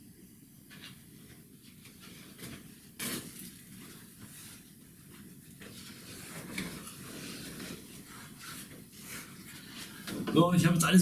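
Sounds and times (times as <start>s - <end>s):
packaging rustling: 1.8s - 10.0s.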